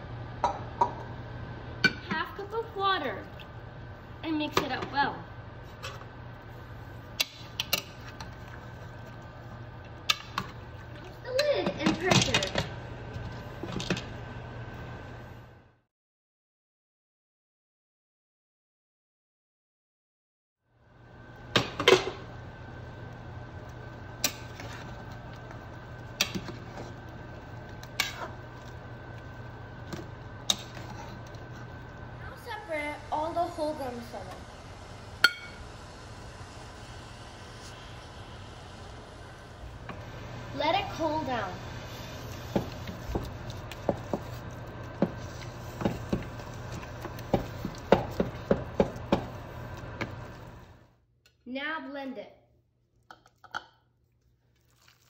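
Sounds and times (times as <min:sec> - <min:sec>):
low hum with high whine: 0:00.0 - 0:15.9, 0:20.7 - 0:54.5
soft scraping in pot: 0:30.5 - 0:31.8
spatula knocking against pot: 0:47.0 - 0:49.4.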